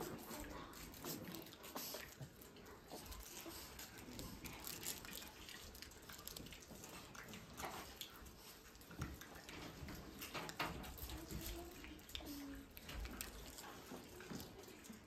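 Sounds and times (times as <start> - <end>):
soft rustling and shuffling: 0.0 - 15.0
small clicks and knocks: 8.9 - 11.6.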